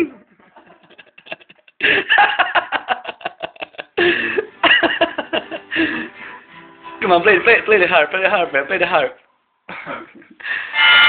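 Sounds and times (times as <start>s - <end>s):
people laughing: 0.5s - 6.1s
held high note: 10.7s - 11.0s.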